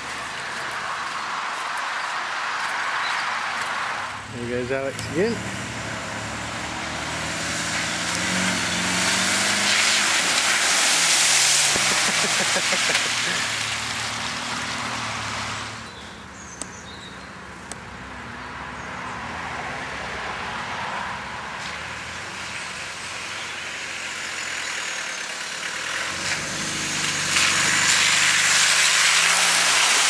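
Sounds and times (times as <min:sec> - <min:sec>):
car engine running: 0:04.2 - 0:17.2
water splashing: 0:05.7 - 0:15.8.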